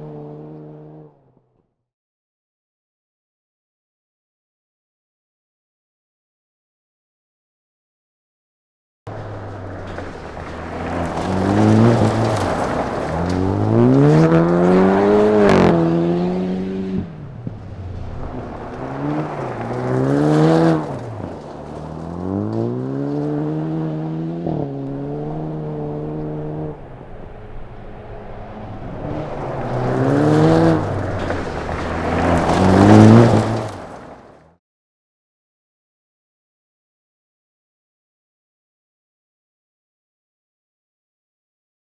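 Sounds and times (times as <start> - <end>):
car engine revving: 0.0 - 1.4, 9.1 - 34.5
gravel spraying under tyres: 9.1 - 23.7, 24.7 - 34.5.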